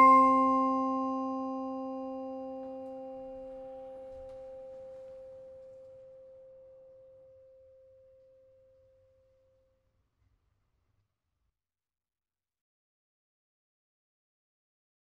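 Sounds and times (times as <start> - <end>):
lower pitched tone: 0.0 - 4.7
mallet percussion chord ringing: 0.0 - 4.9.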